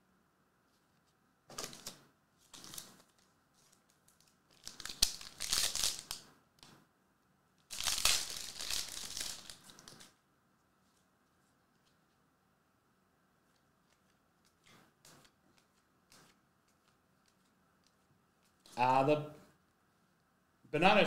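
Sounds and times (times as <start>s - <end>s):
foil wrapper crinkling and tearing: 1.6s - 6.2s, 7.7s - 10.2s.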